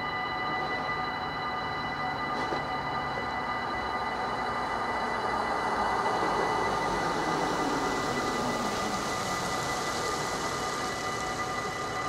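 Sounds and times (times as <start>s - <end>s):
level crossing bell ringing: 0.0s - 11.8s
passing train rushing: 5.2s - 12.0s.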